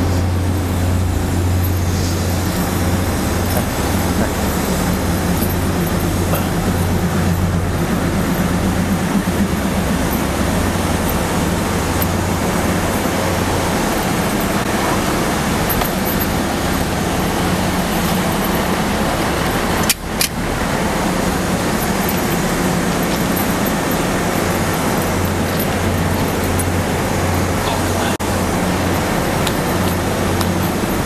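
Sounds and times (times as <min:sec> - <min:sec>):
low hum: 0:00.0 - 0:31.0
train machinery rumble: 0:00.0 - 0:31.0.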